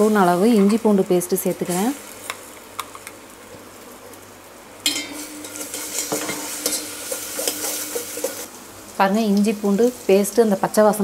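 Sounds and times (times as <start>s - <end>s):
onions sizzling in oil: 0.0s - 11.0s
steel spoon stirring in pot: 4.9s - 8.5s.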